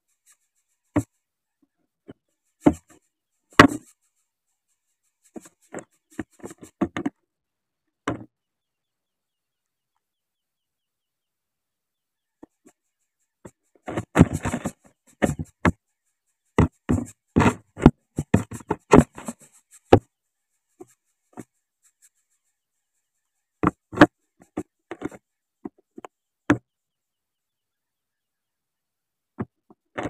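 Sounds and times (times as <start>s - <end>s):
bird knocking against camera: 3.6s - 3.9s, 13.9s - 15.8s, 16.6s - 20.1s
twigs brushing against camera: 4.8s - 6.8s, 12.4s - 23.2s.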